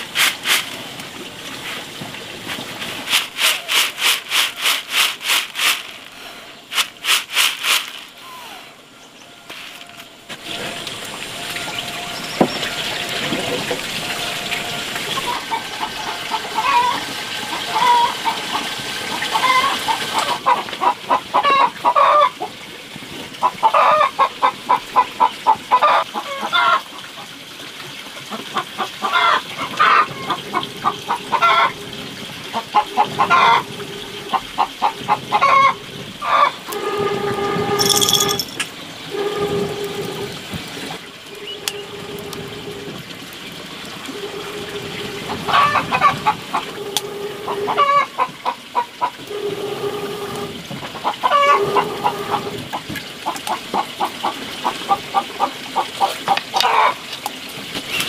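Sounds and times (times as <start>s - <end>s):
chickens drawn-out calls: 8.2s - 22.5s, 23.4s - 27.2s, 28.3s - 37.9s, 43.9s - 57.0s
chickens clucking: 11.5s - 22.4s, 23.4s - 27.2s, 28.3s - 38.4s, 44.0s - 57.0s.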